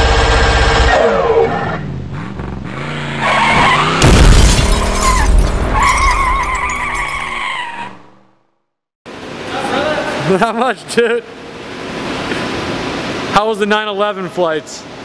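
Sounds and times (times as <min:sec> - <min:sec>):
loud burst: 0:03.8 - 0:05.7.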